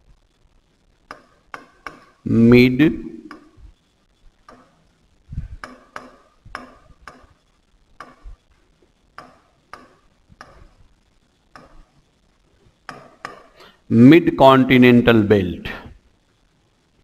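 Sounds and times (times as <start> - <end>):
marker writing on whiteboard: 5.6 - 7.4, 9.2 - 10.8, 11.6 - 12.0, 12.9 - 13.6.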